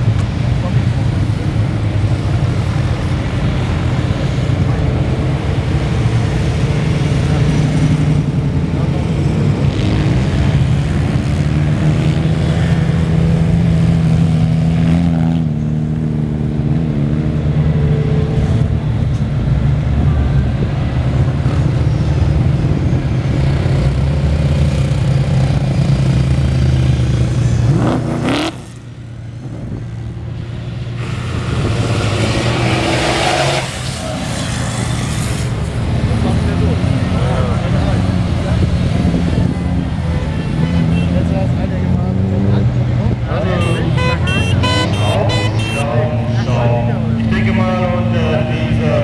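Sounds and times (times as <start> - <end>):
off-road engines revving: 0.0 - 49.0.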